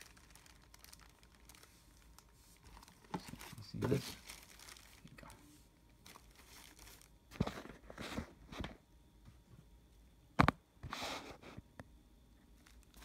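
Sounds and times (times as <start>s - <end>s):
fabric and foam rustling: 0.0s - 8.8s.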